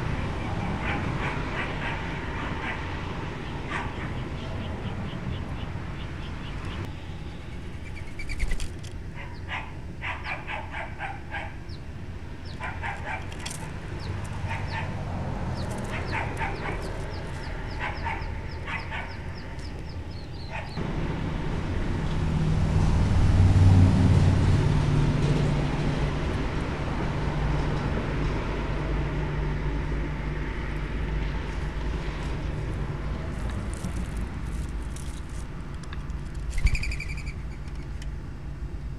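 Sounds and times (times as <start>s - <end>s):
small birds chirping: 3.4s - 10.4s, 11.6s - 20.8s, 36.6s - 38.0s
low rumbling noise: 14.9s - 36.6s.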